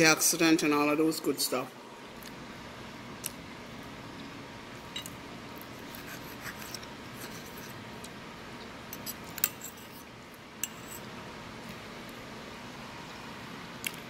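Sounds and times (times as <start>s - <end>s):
fork scraping a plate: 5.8s - 7.8s, 8.9s - 11.1s.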